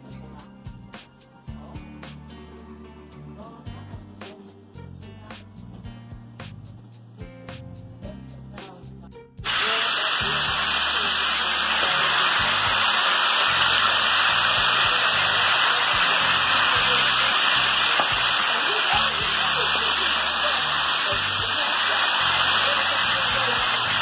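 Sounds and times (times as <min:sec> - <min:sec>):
background music with a beat: 0:00.0 - 0:10.6
water boiling in a pot: 0:09.5 - 0:24.0.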